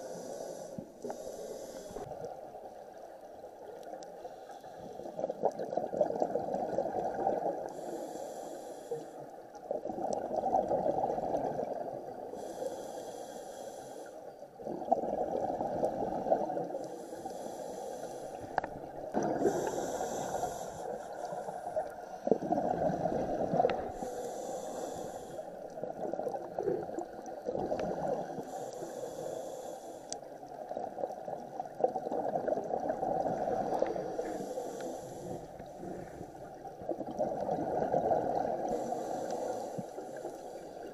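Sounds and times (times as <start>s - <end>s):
regulator inhale hiss: 0.0s - 2.2s, 4.2s - 5.3s, 7.6s - 9.5s, 12.2s - 14.4s, 16.6s - 22.2s, 23.7s - 25.8s, 28.0s - 30.5s, 33.6s - 36.6s, 38.6s - 40.9s
exhaled bubbles gurgling: 5.0s - 8.0s, 9.6s - 12.6s, 14.5s - 29.5s, 30.4s - 40.9s.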